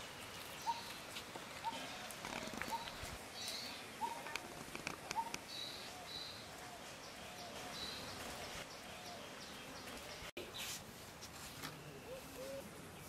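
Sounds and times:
birds chirping: 0:00.3 - 0:10.7.

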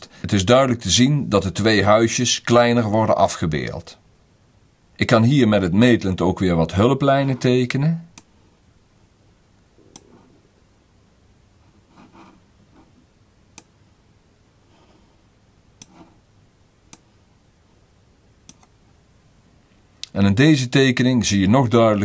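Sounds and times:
mouse buttons clicking: 0:09.9 - 0:10.2, 0:15.8 - 0:16.1, 0:16.9 - 0:17.1, 0:18.4 - 0:18.8.

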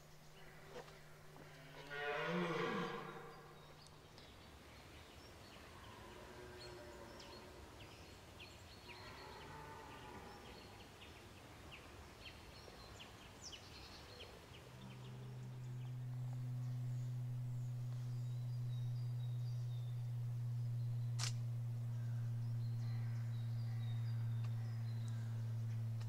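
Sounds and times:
steady low hum: 0:00.0 - 0:05.2, 0:14.4 - 0:26.0
small birds chirping: 0:00.0 - 0:26.0
distant stags bellowing: 0:00.4 - 0:03.7.

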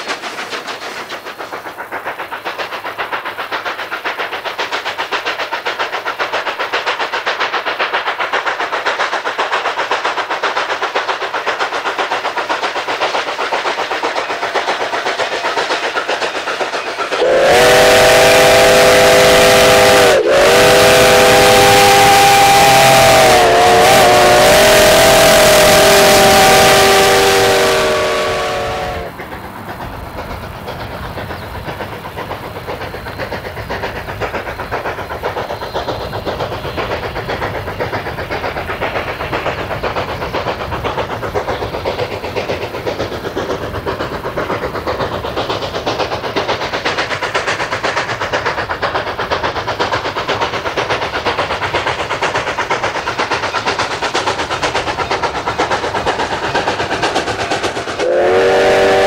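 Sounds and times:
steam locomotive exhaust chuffs: 0:00.0 - 0:59.0
steam whistle chord: 0:17.2 - 0:29.1, 0:58.0 - 0:59.0.

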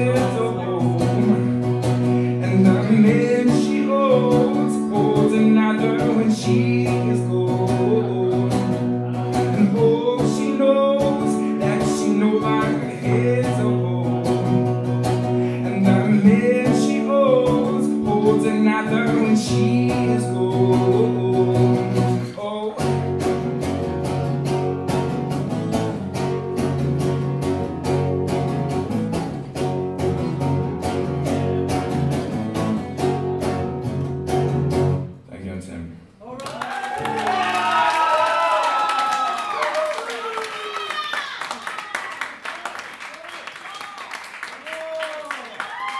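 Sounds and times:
man singing: 0:00.0 - 0:23.2
acoustic guitar strumming: 0:00.0 - 0:35.2.

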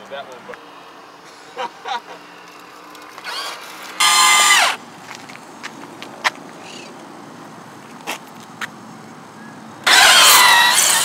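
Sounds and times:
electric motor whine: 0:02.5 - 0:04.8, 0:09.8 - 0:11.0.

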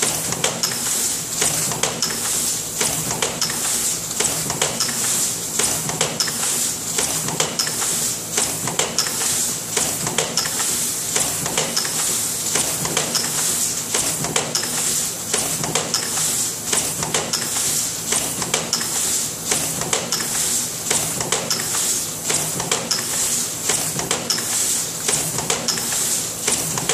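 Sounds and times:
machine hiss and hum: 0:00.0 - 0:26.9
press stamping metallic clatter: 0:00.0 - 0:26.9.

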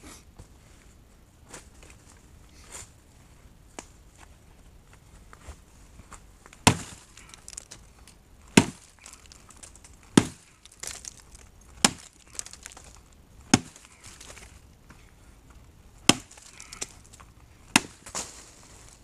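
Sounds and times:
axe chopping wood: 0:06.6 - 0:07.7, 0:08.5 - 0:11.2, 0:11.8 - 0:14.4, 0:16.0 - 0:17.0, 0:17.7 - 0:18.3.

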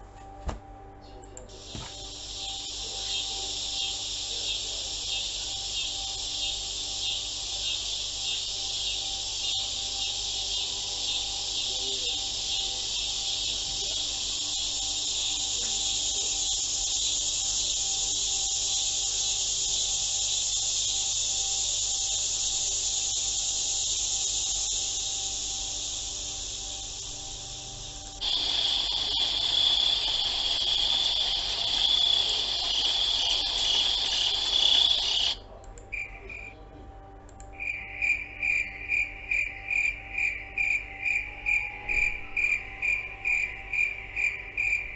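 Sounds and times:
cricket chirping: 0:01.5 - 0:44.9
insect trill: 0:01.5 - 0:44.9
insects chirring: 0:01.5 - 0:44.9.

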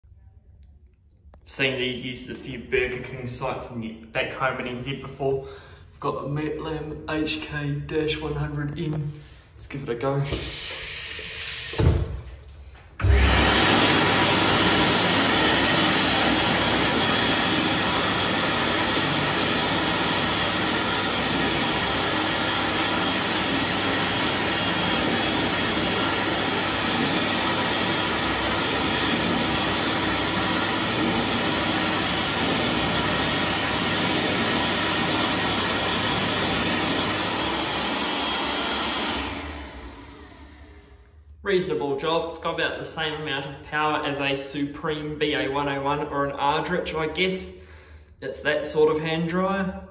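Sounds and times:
hand dryer blowing: 0:08.2 - 0:44.3.

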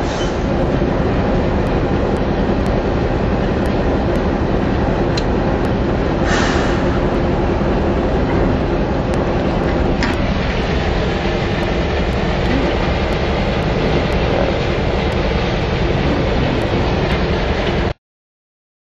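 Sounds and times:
diesel locomotive engines rumbling: 0:00.0 - 0:18.0
rolling train cars: 0:00.0 - 0:18.0.

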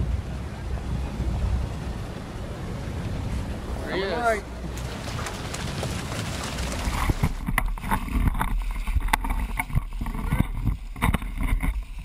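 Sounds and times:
fish thrashing and splashing: 0:04.7 - 0:11.8.

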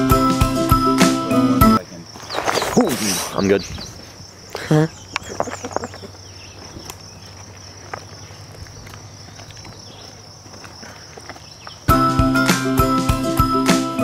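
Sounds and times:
insects buzzing: 0:00.0 - 0:14.0
footsteps on rocky dirt trail: 0:02.1 - 0:02.8, 0:03.6 - 0:12.1.

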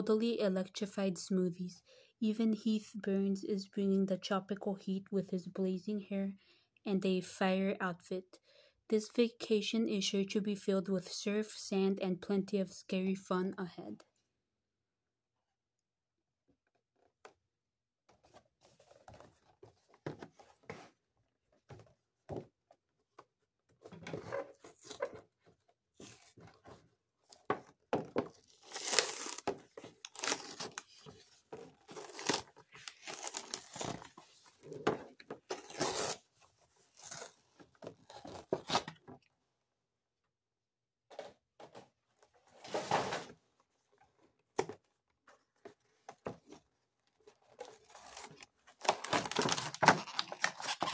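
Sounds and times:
paper and cardboard tearing: 0:28.5 - 0:30.9, 0:31.8 - 0:34.0, 0:35.5 - 0:36.3, 0:47.6 - 0:50.9.

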